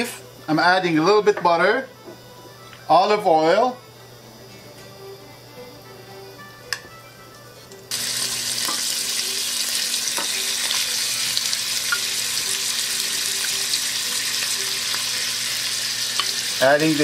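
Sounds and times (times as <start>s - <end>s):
meat sizzling in frying pan: 7.9s - 17.0s.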